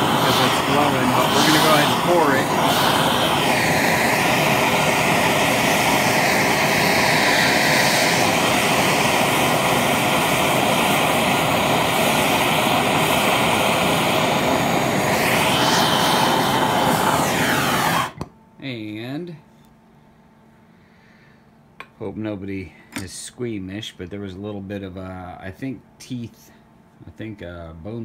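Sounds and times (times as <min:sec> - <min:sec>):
gas torch flame roaring: 0:00.0 - 0:18.3.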